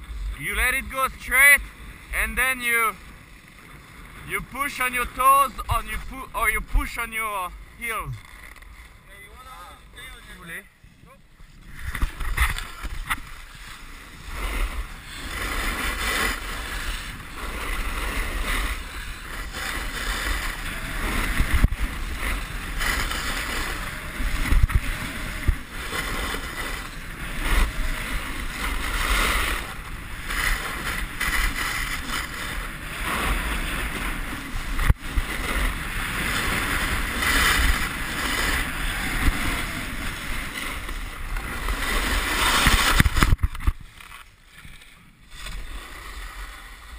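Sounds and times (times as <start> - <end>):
snowboard edges scraping snow: 0.0 - 46.9
wind on microphone: 10.8 - 44.8.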